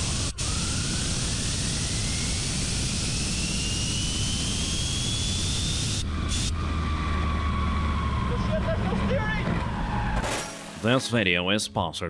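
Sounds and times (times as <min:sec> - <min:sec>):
small turbine spooling up: 0:00.0 - 0:07.6.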